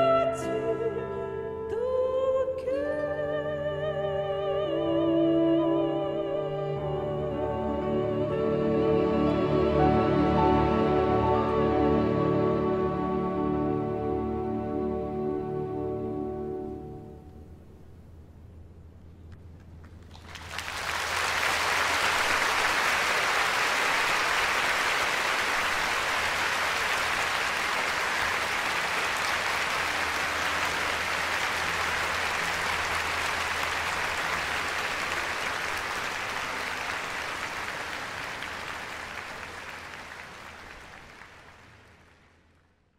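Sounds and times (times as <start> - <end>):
audience applauding: 19.8 - 42.5.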